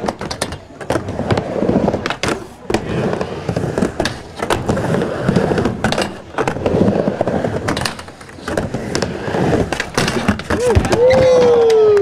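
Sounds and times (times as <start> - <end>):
skateboard wheels rolling on ramp: 0.0 - 12.0
skateboard clacks on coping: 7.6 - 12.0.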